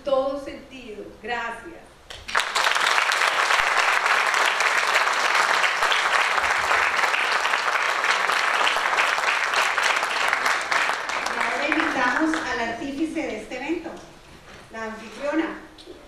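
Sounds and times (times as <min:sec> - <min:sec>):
audience applauding: 0:02.1 - 0:12.7.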